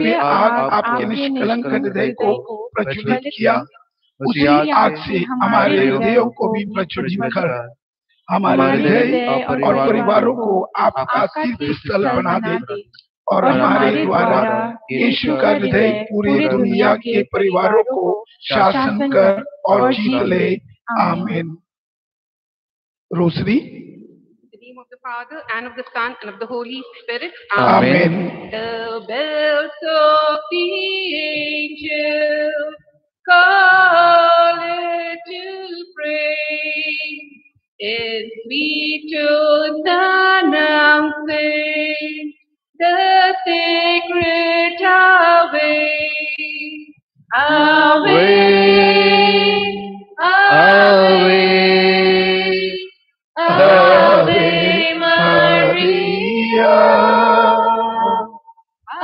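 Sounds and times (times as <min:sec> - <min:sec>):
person singing a hymn: 0:00.0 - 0:03.7, 0:04.3 - 0:07.4, 0:08.4 - 0:10.5, 0:11.3 - 0:17.8, 0:18.4 - 0:21.4, 0:27.5 - 0:32.6, 0:47.3 - 0:59.0.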